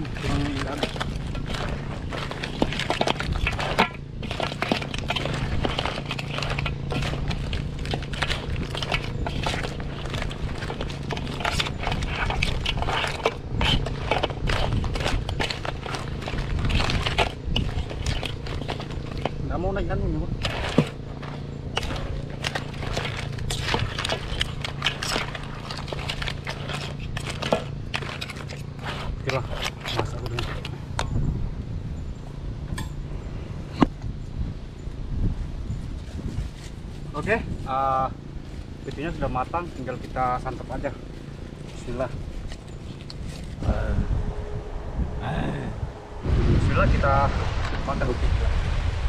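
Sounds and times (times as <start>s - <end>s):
crab shells clattering in a wok: 0.0s - 19.4s, 20.3s - 30.8s
wooden spatula scraping: 0.0s - 31.0s
low hum: 0.0s - 49.0s.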